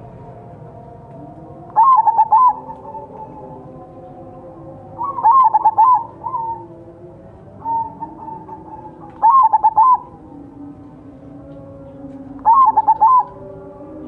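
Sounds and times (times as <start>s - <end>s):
dove cooing: 1.7s - 3.9s, 4.6s - 6.8s, 7.6s - 10.7s, 11.5s - 14.0s.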